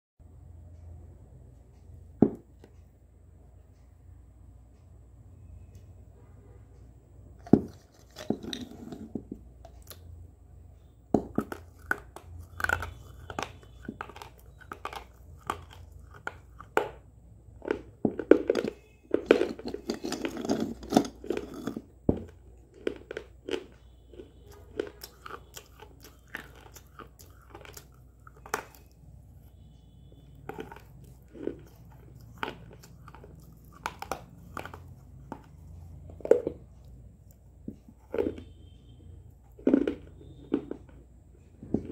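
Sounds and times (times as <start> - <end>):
crunchy chewing and snapping: 11.2 - 41.0.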